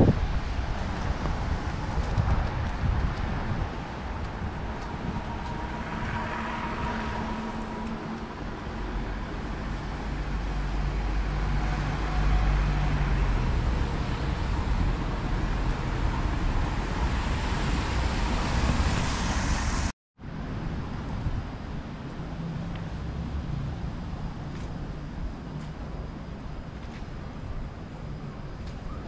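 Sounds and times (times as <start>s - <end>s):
hiss of passing traffic: 0.0s - 29.0s
vehicle engine humming: 0.7s - 19.8s.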